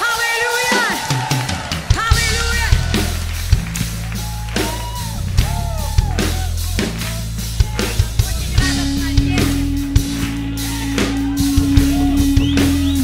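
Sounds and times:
drum kit beat: 0:00.0 - 0:13.0
bass guitar: 0:02.0 - 0:13.0
electric guitars: 0:07.0 - 0:13.0.

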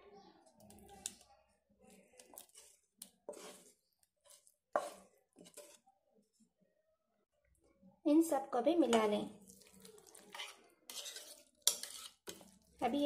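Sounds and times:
wooden spatula scraping pan: 0:01.9 - 0:05.9, 0:09.5 - 0:13.0.

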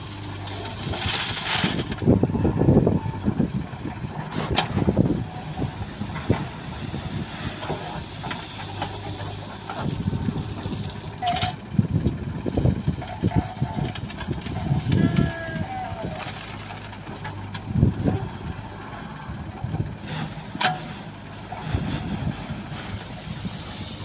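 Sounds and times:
diesel engine running under load: 0:00.0 - 0:24.0
hiss: 0:05.9 - 0:11.0, 0:22.8 - 0:24.0.

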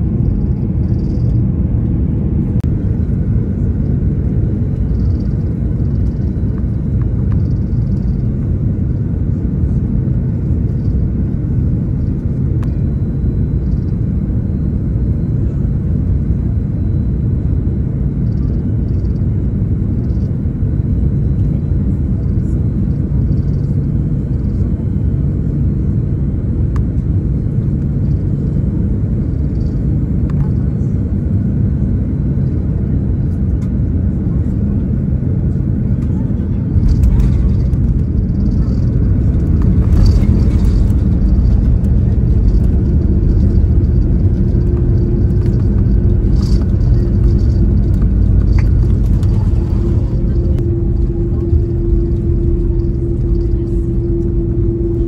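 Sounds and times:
airliner cabin rumble: 0:00.0 - 0:55.0.

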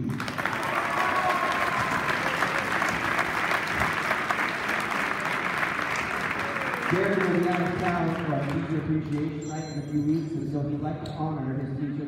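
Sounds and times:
audience clapping: 0:00.0 - 0:09.4.

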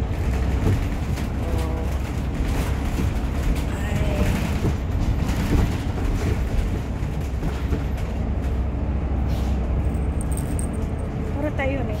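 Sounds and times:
bus engine and road rumble: 0:00.0 - 0:12.0
cabin rattles and clicks: 0:02.0 - 0:08.4.

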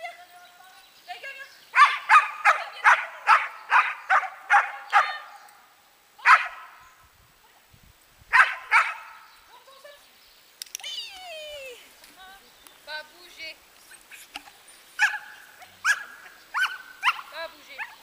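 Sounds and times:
dog barking: 0:01.8 - 0:05.3, 0:06.2 - 0:06.7, 0:08.3 - 0:09.2, 0:15.0 - 0:18.0.

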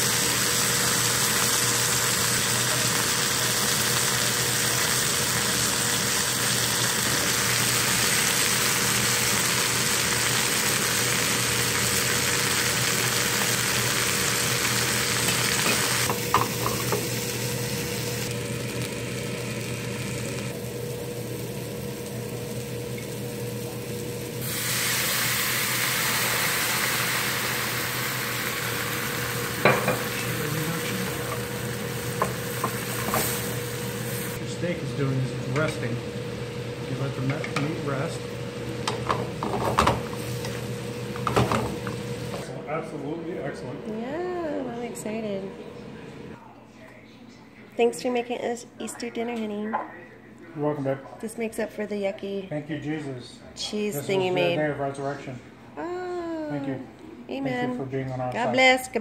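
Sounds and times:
steak sizzling in a skillet: 0:00.0 - 0:34.4, 0:35.0 - 0:42.4
mushrooms and onions frying: 0:00.0 - 0:42.5.

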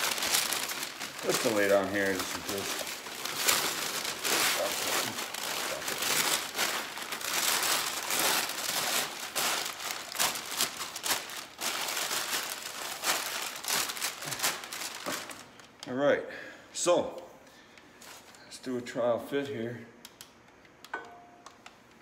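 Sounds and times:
plastic sheet crinkling: 0:00.0 - 0:15.7.

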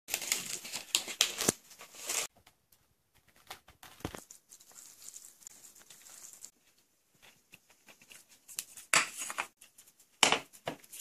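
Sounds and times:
cling wrap crinkling: 0:00.1 - 0:02.3, 0:03.4 - 0:06.6.

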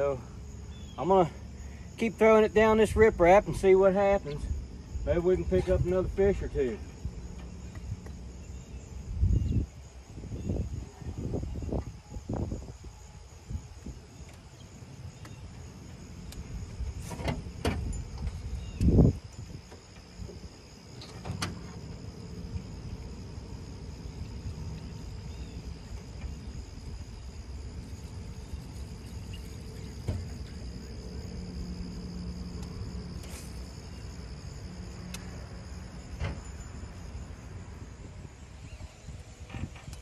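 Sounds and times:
high insect drone: 0:00.0 - 0:40.0.

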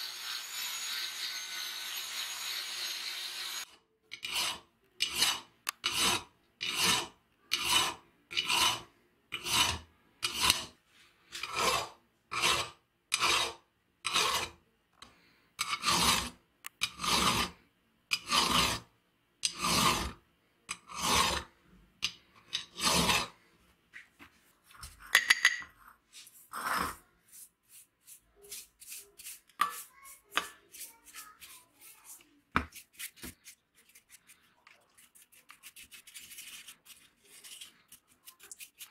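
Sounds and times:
hand file rasping on metal: 0:00.0 - 0:14.6, 0:15.6 - 0:23.4, 0:26.6 - 0:34.4.

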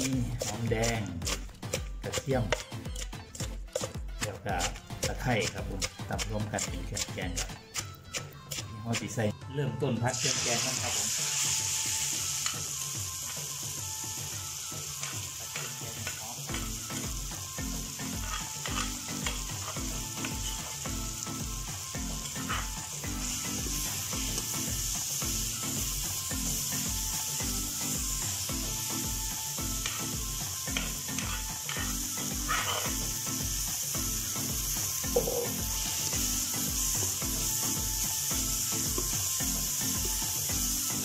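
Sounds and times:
curry paste sizzling in a wok: 0:00.0 - 0:09.3, 0:10.0 - 0:41.0
metal spatula scraping a pan: 0:18.0 - 0:20.7, 0:22.1 - 0:24.4, 0:30.7 - 0:33.1.

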